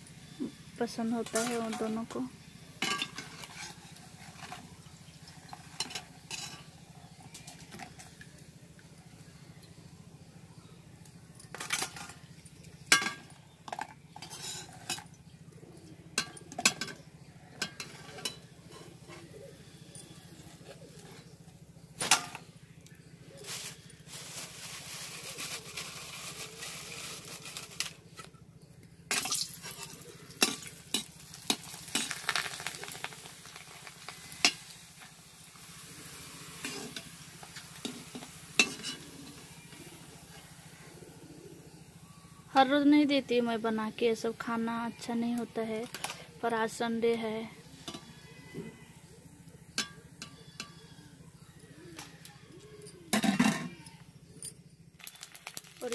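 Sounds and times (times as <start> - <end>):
metal spoon scraping a pan: 2.8 - 4.6, 5.5 - 6.8, 12.9 - 15.0, 17.6 - 19.2, 36.5 - 39.6
food frying in oil: 29.1 - 39.6, 55.0 - 55.9
oil sizzling: 29.1 - 40.7.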